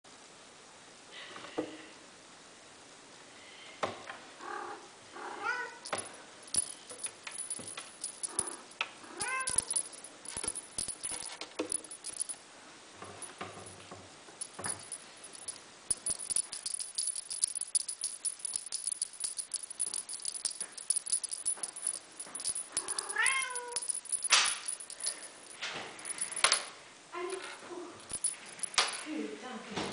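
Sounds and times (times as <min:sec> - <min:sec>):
toy rattling on wooden stairs: 0:05.8 - 0:12.4, 0:14.4 - 0:26.6, 0:27.3 - 0:29.0.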